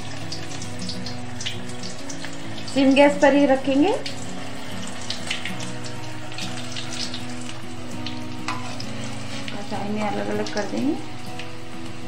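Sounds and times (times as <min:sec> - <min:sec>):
deep-frying in hot oil: 0:00.0 - 0:12.0.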